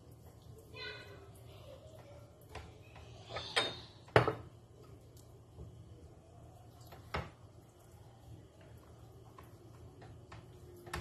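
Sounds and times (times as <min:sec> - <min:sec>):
kitchen items knocking on countertop: 0:04.1 - 0:04.5.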